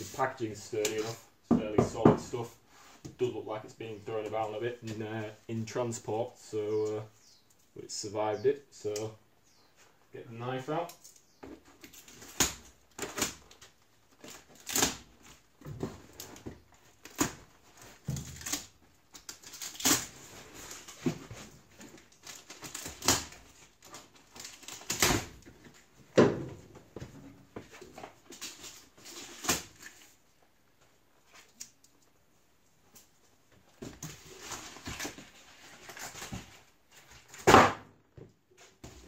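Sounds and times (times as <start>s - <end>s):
tape tearing: 11.8s - 15.4s, 16.1s - 21.2s, 21.8s - 25.5s, 28.3s - 30.2s
knife cutting packing tape: 14.2s - 15.1s, 18.2s - 21.0s, 22.2s - 25.4s.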